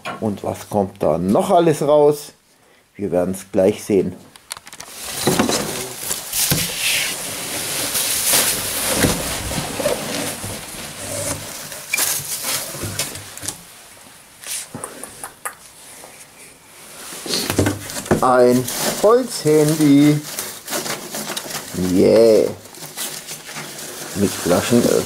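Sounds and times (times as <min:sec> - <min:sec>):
plastic wrapping crackling: 0:04.4 - 0:13.6, 0:17.2 - 0:25.0
foam packing peanuts rustling: 0:04.8 - 0:13.8, 0:16.8 - 0:25.0
cardboard being handled: 0:04.9 - 0:13.4, 0:17.2 - 0:25.0.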